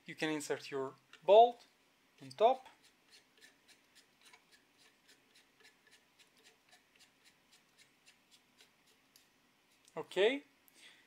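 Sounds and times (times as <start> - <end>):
faint evenly spaced clicking: 2.2 - 10.0.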